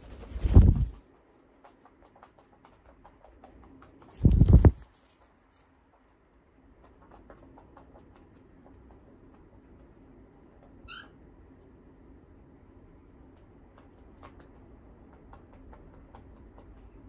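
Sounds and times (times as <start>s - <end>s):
soft rustling of feathers: 0.0s - 10.0s.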